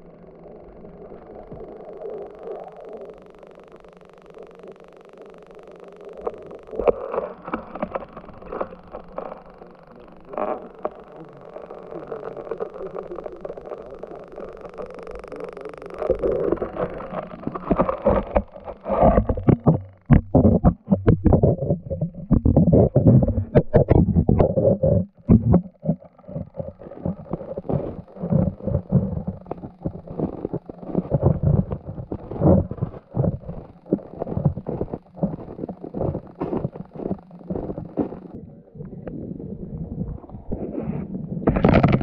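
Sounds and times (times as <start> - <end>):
muffled underwater noise: 0.0 - 42.0
knocks and bumps: 19.0 - 30.0.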